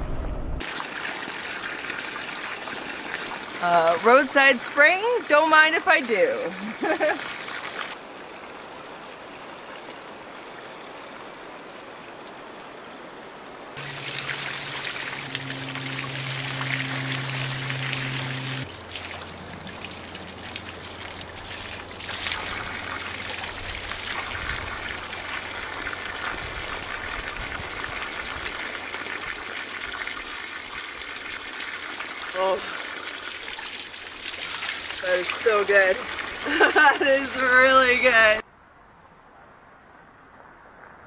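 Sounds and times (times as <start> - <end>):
low steady hum: 13.8 - 26.0
water splashing onto rocks: 13.8 - 38.4.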